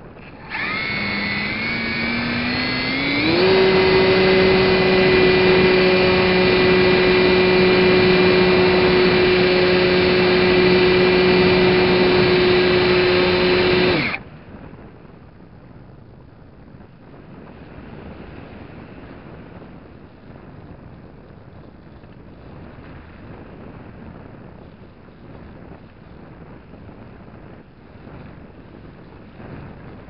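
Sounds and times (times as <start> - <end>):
model plane motor whining: 0.0 - 14.2.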